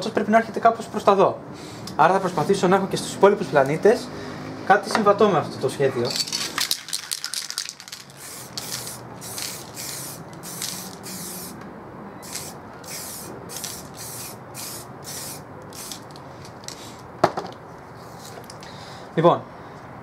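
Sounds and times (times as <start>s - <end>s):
spray paint can hissing: 6.2s - 11.6s, 12.2s - 17.0s.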